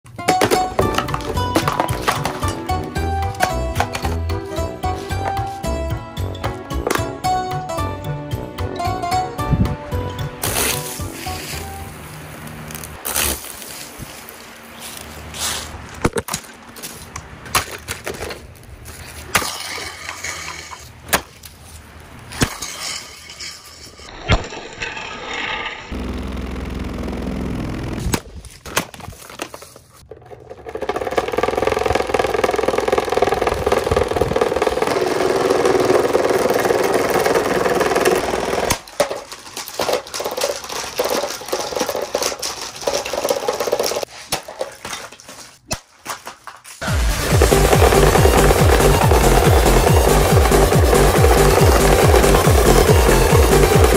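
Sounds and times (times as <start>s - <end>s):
plastic cracking and knocking: 28.6s - 44.7s.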